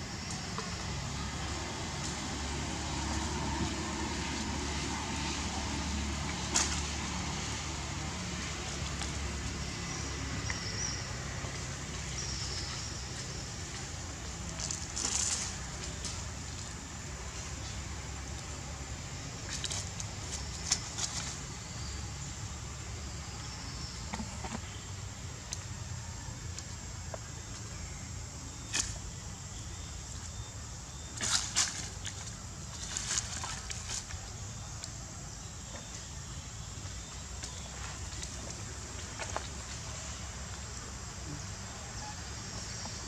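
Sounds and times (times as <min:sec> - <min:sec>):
dry leaves rustling and crunching: 0:14.6 - 0:16.2, 0:31.2 - 0:34.1.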